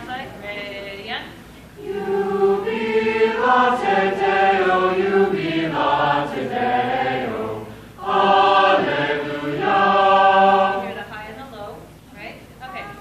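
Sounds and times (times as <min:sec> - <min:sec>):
choir singing sustained chords: 0:01.8 - 0:11.2.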